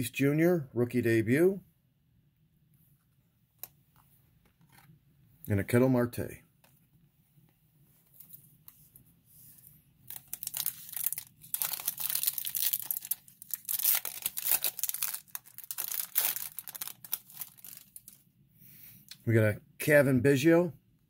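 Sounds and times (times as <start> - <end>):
foil wrapper crinkling and tearing: 10.1 - 18.2.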